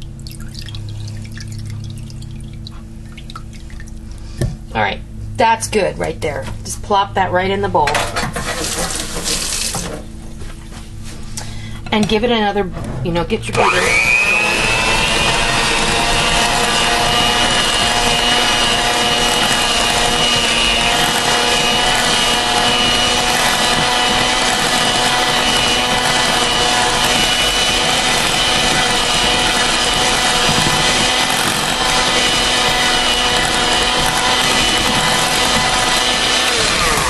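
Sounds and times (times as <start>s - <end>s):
electric hand mixer running: 8.4s - 9.9s, 13.6s - 37.0s.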